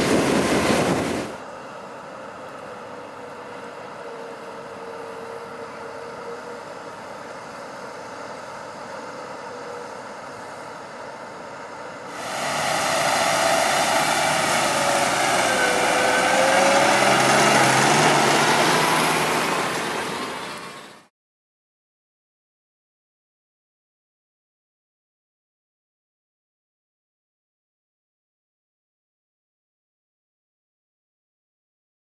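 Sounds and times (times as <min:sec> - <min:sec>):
tractor engine passing: 0:12.0 - 0:21.1.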